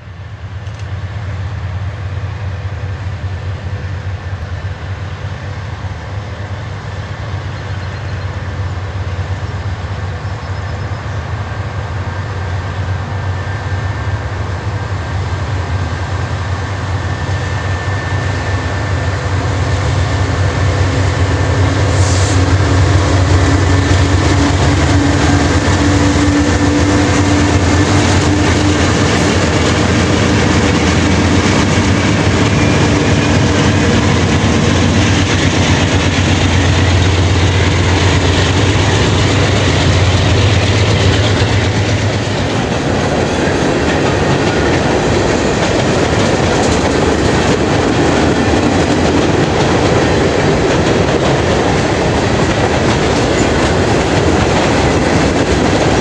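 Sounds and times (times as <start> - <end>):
diesel locomotive engines droning: 0.0 - 56.0
brief hiss: 21.9 - 22.5.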